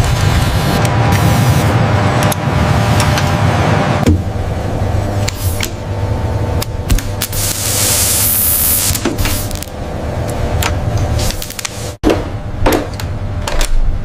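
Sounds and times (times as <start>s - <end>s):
low machine hum: 0.0s - 14.0s
laser hiss: 7.2s - 9.7s.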